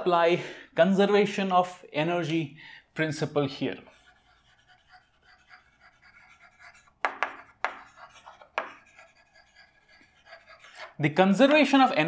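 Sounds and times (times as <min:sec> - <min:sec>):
chalk scratching on chalkboard: 0:03.8 - 0:11.8
chalk tapping on board: 0:03.9 - 0:11.7.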